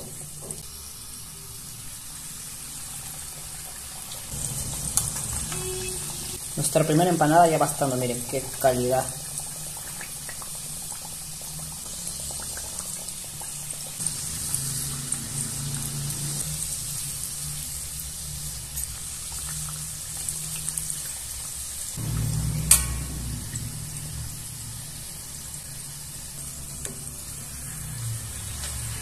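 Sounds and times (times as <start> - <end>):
oil bubbling and sizzling: 0.0 - 29.0
low steady hum: 22.0 - 27.5.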